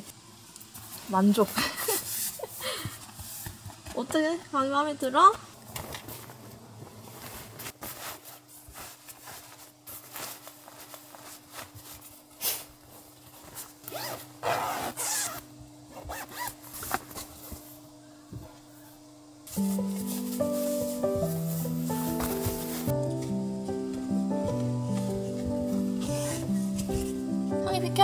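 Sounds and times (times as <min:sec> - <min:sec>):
fabric rustling: 0:06.0 - 0:17.4, 0:19.6 - 0:22.9
zipper: 0:13.8 - 0:16.6, 0:26.0 - 0:26.6.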